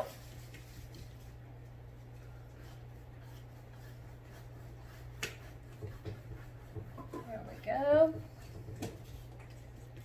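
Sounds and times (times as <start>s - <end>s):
paintbrush rubbing on canvas: 0.0s - 10.0s
steady low hum: 0.0s - 10.0s.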